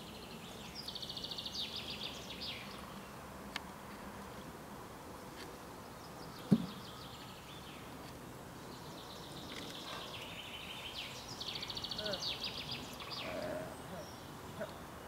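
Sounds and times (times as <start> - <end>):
outdoor background noise: 0.0 - 15.0
faint bird chirps: 8.6 - 15.0.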